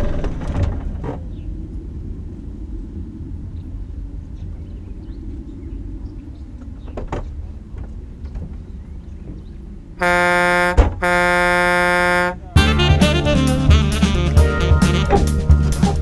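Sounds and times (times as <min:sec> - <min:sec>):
vehicle rumbling over rough ground: 0:00.0 - 0:16.0
vehicle horn blasts: 0:10.0 - 0:15.3
thump: 0:10.8 - 0:11.0.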